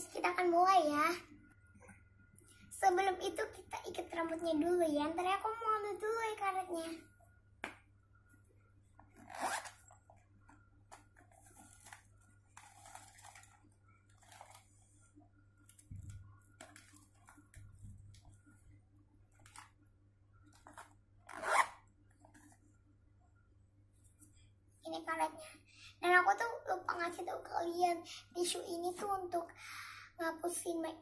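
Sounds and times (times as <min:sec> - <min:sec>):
plastic pouch crinkling and rustling: 0:11.2 - 0:14.7.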